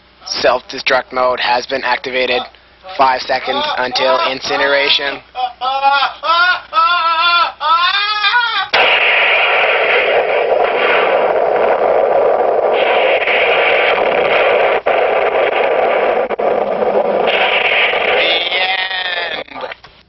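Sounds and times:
loud static hiss: 0.0 - 20.0
warbling electronic tone: 8.8 - 19.5.

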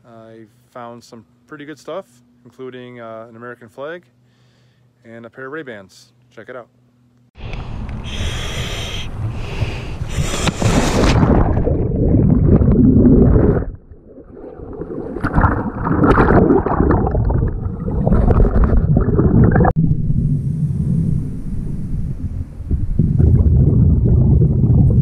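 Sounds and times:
muffled underwater rush: 9.1 - 25.0
water bubbling and gurgling: 10.2 - 20.0, 22.6 - 25.0.

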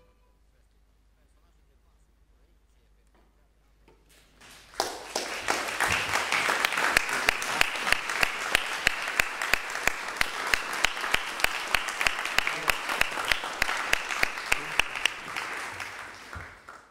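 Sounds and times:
loud clapping close by: 4.1 - 16.9
audience applause: 4.4 - 16.9.

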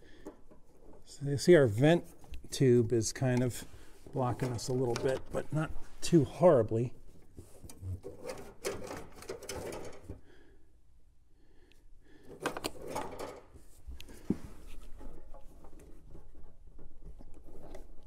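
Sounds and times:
metal line clicking and scraping: 0.0 - 5.6, 7.4 - 10.2.

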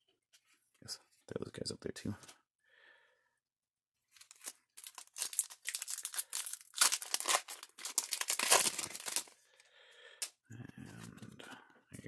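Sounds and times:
foil wrapper tearing and crinkling: 4.2 - 9.4.

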